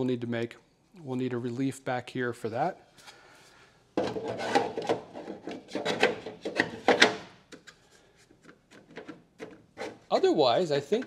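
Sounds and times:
plastic scraping on steel: 4.0 - 7.2.

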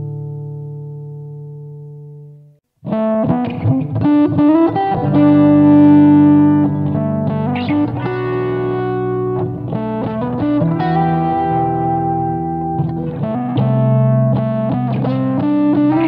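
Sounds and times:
electric guitar with light distortion: 0.0 - 16.0.

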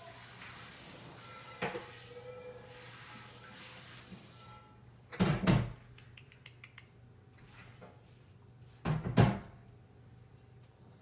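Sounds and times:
dishes clattering at sink: 1.3 - 3.6.

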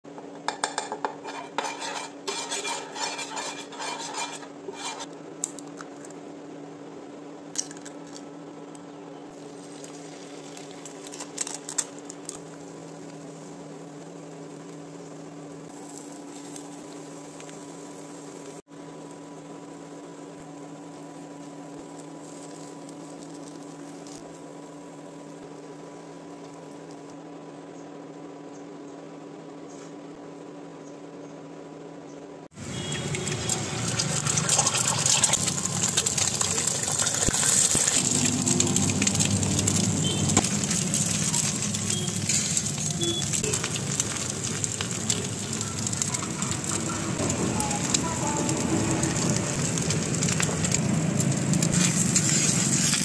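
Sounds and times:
steady droning hum: 0.1 - 53.0
metal utensils scraping a pan: 0.7 - 5.1.

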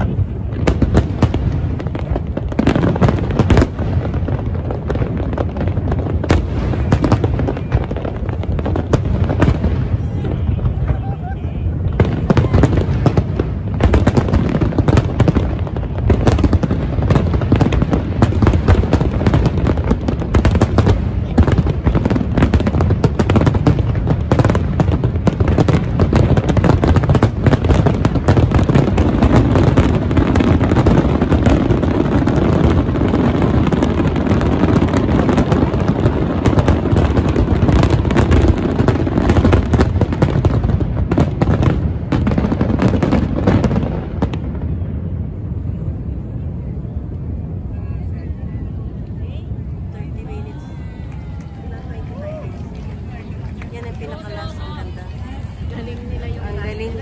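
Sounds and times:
fireworks bangs and crackling: 0.0 - 57.0.

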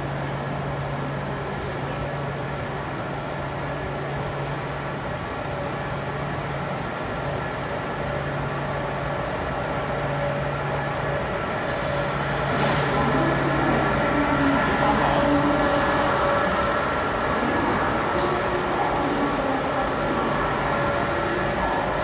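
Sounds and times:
train engine humming: 0.0 - 22.0
hiss: 11.6 - 13.4
high squeal: 11.7 - 13.4.

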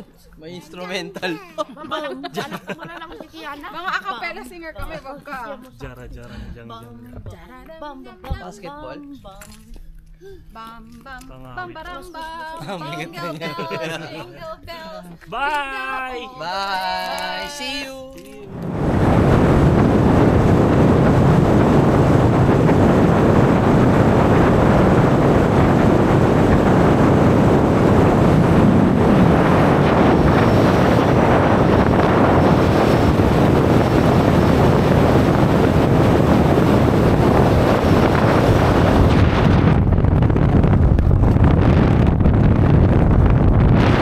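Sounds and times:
wind buffeting microphone: 18.5 - 44.0.

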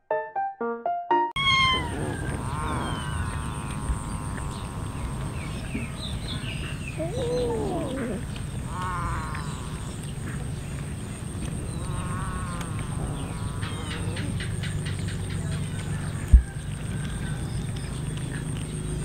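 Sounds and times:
cats meowing: 1.4 - 5.8, 6.7 - 9.8
drawn-out low meow: 1.4 - 10.0, 11.8 - 14.4.

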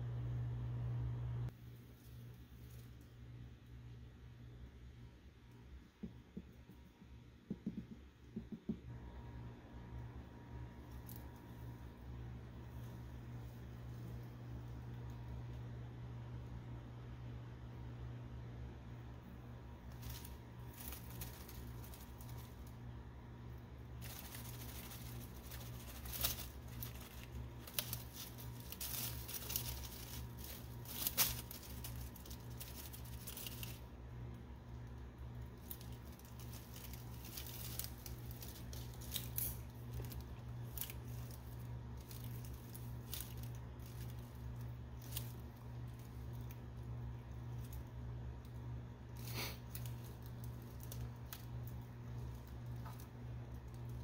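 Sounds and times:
steady low hum: 0.0 - 54.0
dry leaves rustling: 19.6 - 54.0.

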